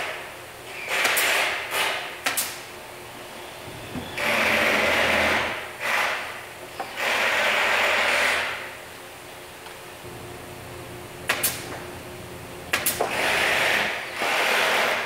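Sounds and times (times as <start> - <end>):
power drill driving screws: 4.2 - 6.2.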